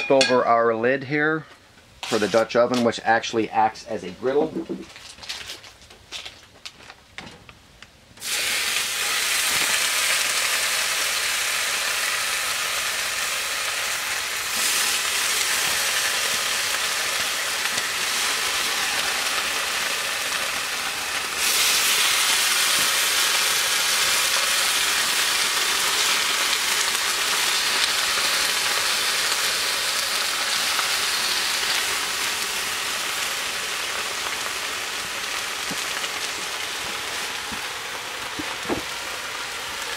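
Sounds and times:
bacon sizzling on griddle: 0:08.2 - 0:39.9.

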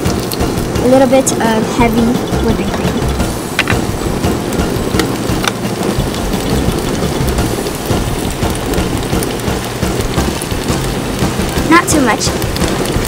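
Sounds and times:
sauce sizzling in a frying pan: 0:00.0 - 0:13.0
sharp pops: 0:03.5 - 0:04.0.

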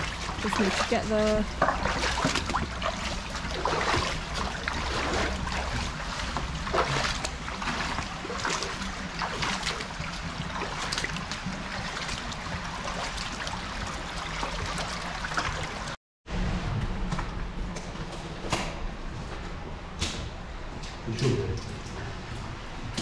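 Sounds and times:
footsteps splashing through water: 0:00.0 - 0:15.9
running water rushing: 0:00.0 - 0:16.0.

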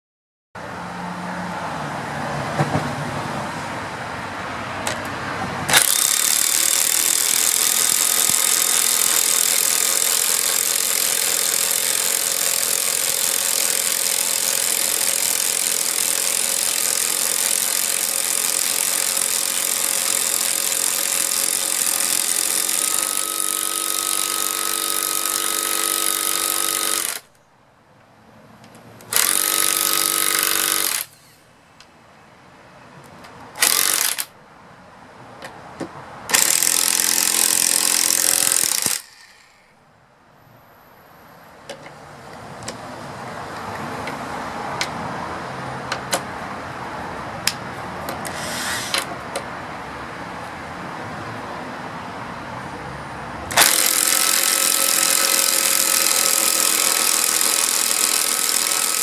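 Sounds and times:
impact wrench motor whine: 0:05.7 - 0:27.3, 0:29.1 - 0:31.4, 0:33.6 - 0:34.3, 0:36.3 - 0:39.7, 0:53.5 - 0:59.0
impact wrenches hammering: 0:05.7 - 0:27.3, 0:36.3 - 0:39.6, 0:53.5 - 0:59.0.

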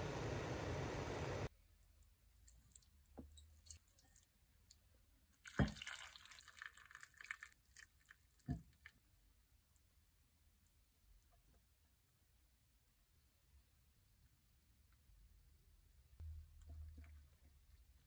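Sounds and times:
liquid splashing: 0:05.4 - 0:08.9.

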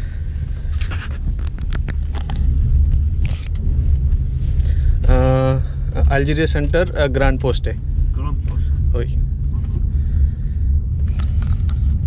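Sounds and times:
car engine and road rumble: 0:00.0 - 0:12.0
light clicks and rustles: 0:00.6 - 0:03.6.

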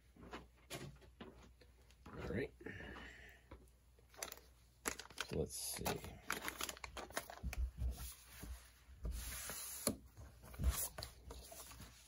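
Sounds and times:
paper rustling: 0:04.1 - 0:12.0.

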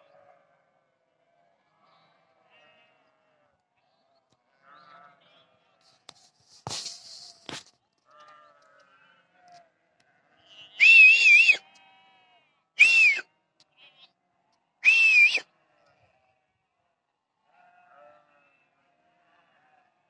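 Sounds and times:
distant flock bleating: 0:02.0 - 0:03.5, 0:08.1 - 0:12.6, 0:17.5 - 0:20.0
sheep bleating loudly: 0:10.2 - 0:13.2.

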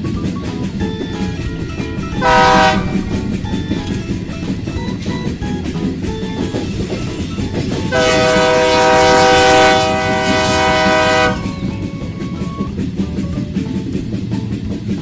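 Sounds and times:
train rumbling on rails: 0:00.0 - 0:15.0
train horn blast: 0:01.0 - 0:12.8.

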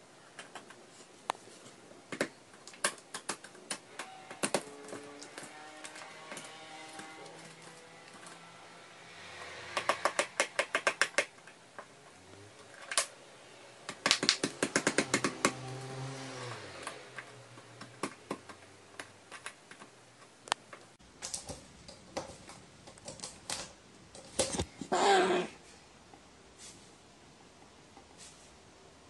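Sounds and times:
crow pecking on wood: 0:09.7 - 0:11.4.

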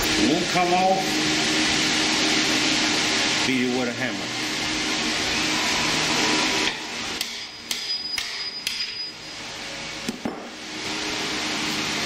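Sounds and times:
hammer striking metal: 0:06.7 - 0:09.1.

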